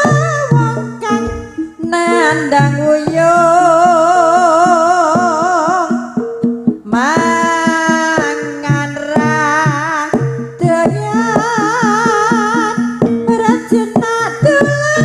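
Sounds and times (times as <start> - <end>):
drum strokes: 0.0 - 15.0
wavering held melody: 0.0 - 15.0
low repeated tones: 1.0 - 1.9.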